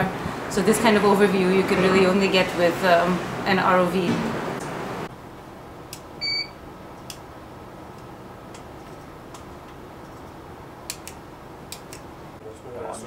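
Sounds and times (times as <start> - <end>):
equipment hum: 0.0 - 13.0
short electronic beep: 6.2 - 6.6.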